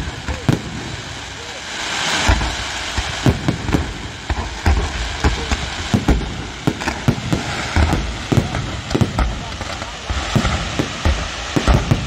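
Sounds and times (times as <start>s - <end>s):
firework crackling and hiss: 0.0s - 12.0s
firework shells booming: 0.0s - 12.0s.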